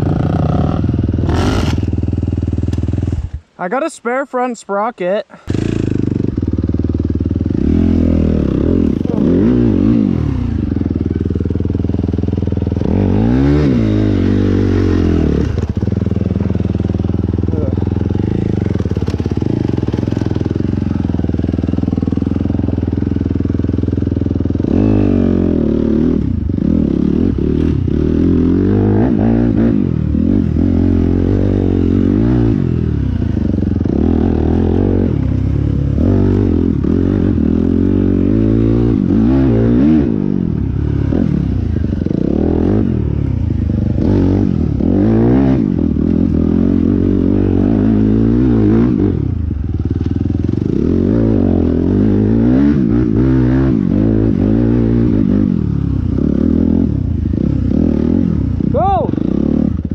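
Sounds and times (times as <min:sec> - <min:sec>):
motorcycle engine revving: 0:00.0 - 0:03.6, 0:05.3 - 0:59.9.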